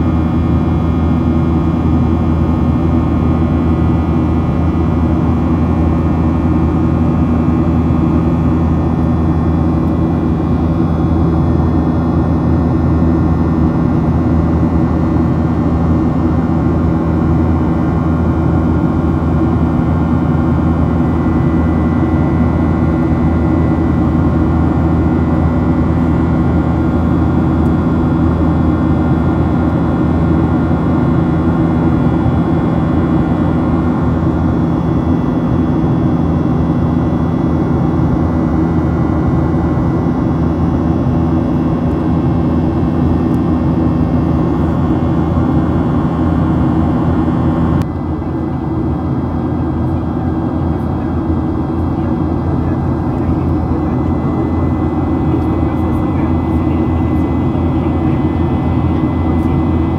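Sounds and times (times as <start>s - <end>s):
jet engine cabin drone: 0.0s - 59.9s.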